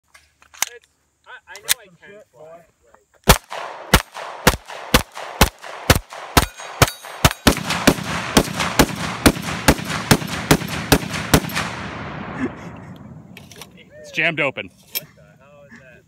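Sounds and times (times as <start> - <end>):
rapid pistol shots: 3.2 - 12.6.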